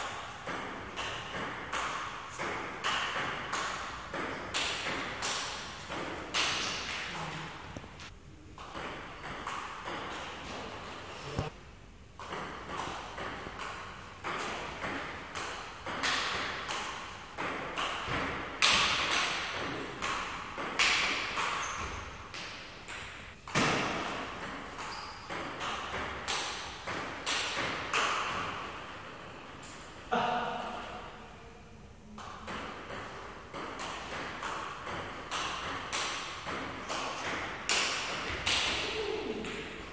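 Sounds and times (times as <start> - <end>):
table tennis ball knocking: 0.4 - 7.1, 8.6 - 10.6, 12.2 - 22.0, 22.9 - 28.6, 32.2 - 38.8.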